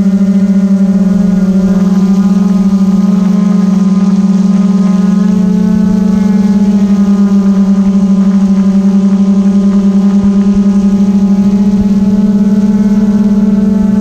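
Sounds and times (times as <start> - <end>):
drone propellers humming: 0.0 - 14.0.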